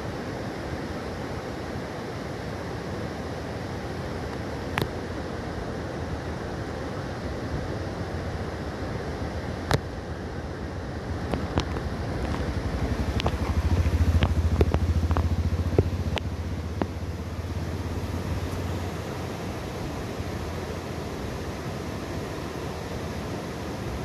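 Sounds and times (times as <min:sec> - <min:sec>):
fast river rushing: 0:00.0 - 0:24.0
vehicle rumbling: 0:10.7 - 0:21.6.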